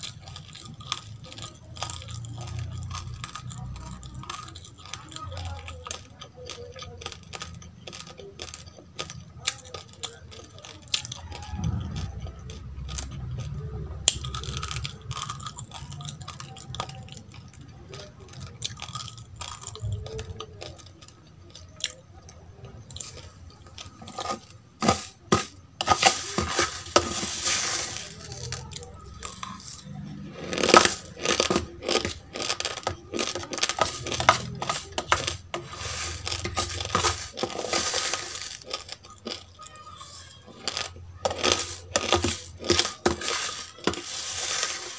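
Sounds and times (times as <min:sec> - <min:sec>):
hard rice crunching: 0:00.0 - 0:44.9
metal spoon scraping a plate: 0:24.0 - 0:28.6, 0:29.2 - 0:39.0, 0:40.6 - 0:44.9.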